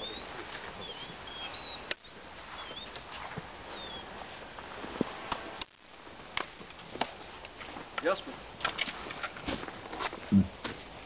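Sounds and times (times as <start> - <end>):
small bird singing: 0.0 - 4.1
steady hiss: 0.0 - 11.0.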